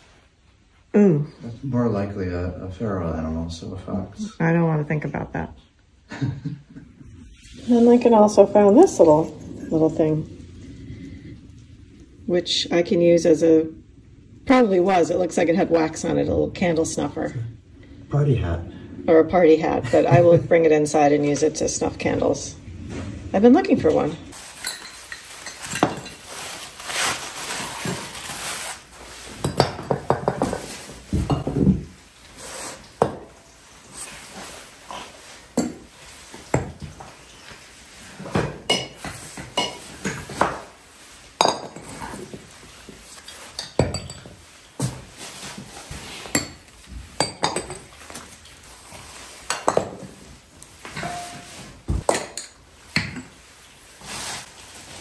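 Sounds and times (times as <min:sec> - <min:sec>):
glass jars clinking on floor: 0:24.4 - 0:26.5, 0:29.4 - 0:31.8, 0:38.3 - 0:40.6, 0:41.4 - 0:42.4, 0:43.3 - 0:45.0, 0:46.2 - 0:48.2, 0:49.5 - 0:50.1, 0:50.9 - 0:53.4.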